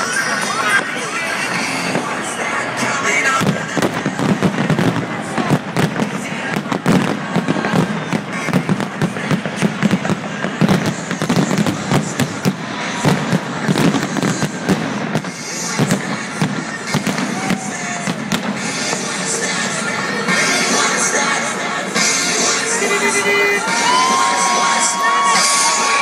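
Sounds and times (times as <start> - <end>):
fireworks bangs and crackles: 0.0 - 26.0
music playing: 0.0 - 26.0.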